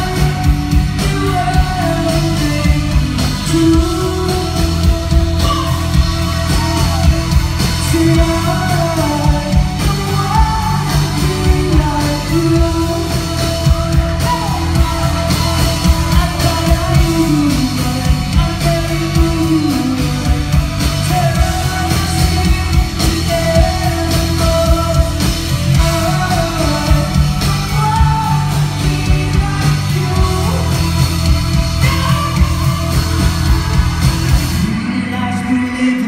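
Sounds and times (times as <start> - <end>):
lead vocal singing: 0.0 - 36.0
rock band playing: 0.0 - 36.0
steady drum beat: 0.0 - 36.0.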